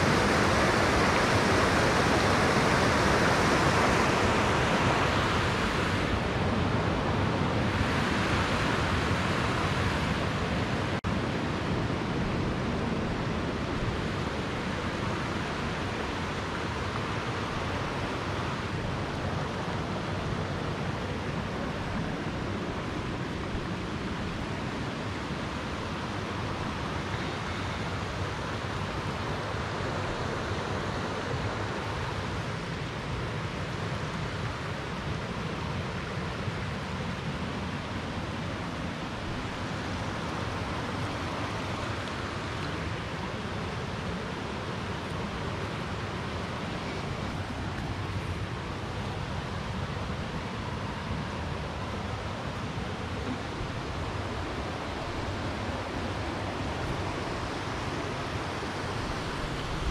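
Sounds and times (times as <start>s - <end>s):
river rapids rushing over rocks: 0.0s - 59.9s.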